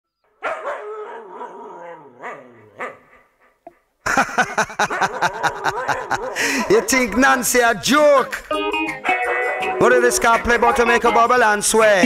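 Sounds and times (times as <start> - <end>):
dog whining: 0.4 - 3.2.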